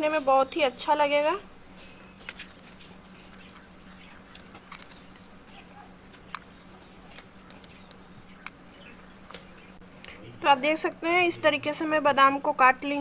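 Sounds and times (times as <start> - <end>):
low steady hum: 0.0 - 13.0
knife clicking cutting almonds: 6.2 - 8.6.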